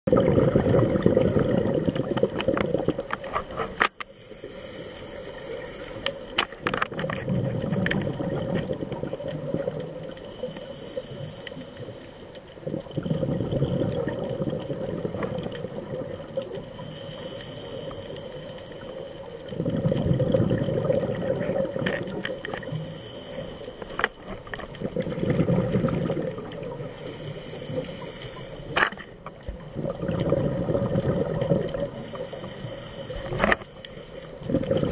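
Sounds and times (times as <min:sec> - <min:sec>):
gurgling exhaled bubbles: 0:00.1 - 0:03.7, 0:06.6 - 0:10.6, 0:12.5 - 0:17.1, 0:17.7 - 0:23.0, 0:24.0 - 0:28.1, 0:28.7 - 0:32.4, 0:34.3 - 0:34.9
regulator inhalation hiss: 0:04.1 - 0:06.4, 0:10.2 - 0:12.5, 0:16.8 - 0:19.4, 0:22.4 - 0:24.1, 0:26.8 - 0:28.8, 0:31.9 - 0:34.4.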